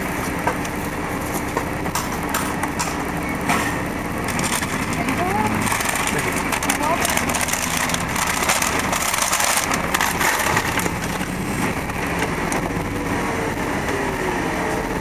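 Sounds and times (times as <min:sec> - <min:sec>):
car engine running: 0:00.0 - 0:15.0
road noise inside car: 0:00.0 - 0:15.0
paper bag crinkling: 0:04.3 - 0:11.7.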